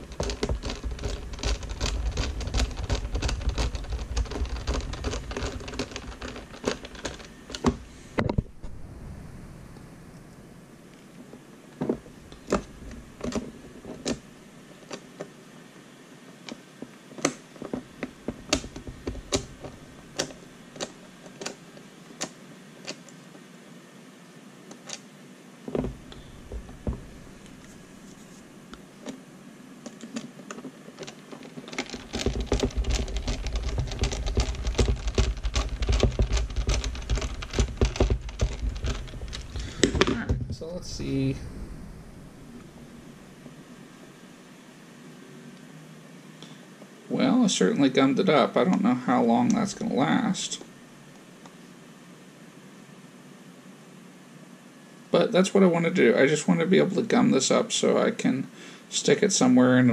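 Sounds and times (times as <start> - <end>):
plastic case being handled: 0.0 - 8.5, 11.2 - 15.4, 16.5 - 23.1, 25.7 - 29.2, 29.8 - 41.2.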